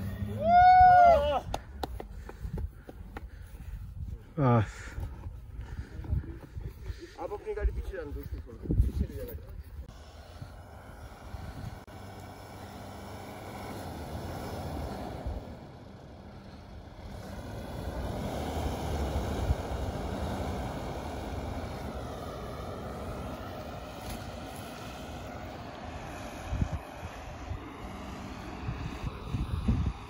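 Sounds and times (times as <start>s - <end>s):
diesel engine revving under load: 9.8s - 29.2s.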